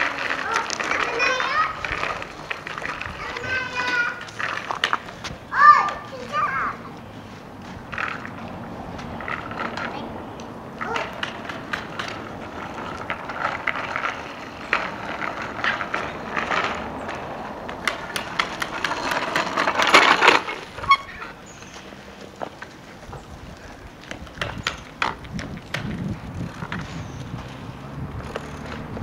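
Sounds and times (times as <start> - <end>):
children's voices: 0.0 - 4.7, 5.4 - 7.2, 9.6 - 10.2, 10.8 - 11.4.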